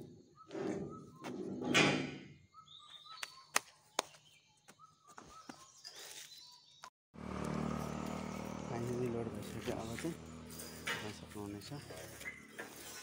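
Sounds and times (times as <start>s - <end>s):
small birds chirping: 2.3s - 6.9s, 7.5s - 13.0s
steel pipe scraping: 10.4s - 13.0s.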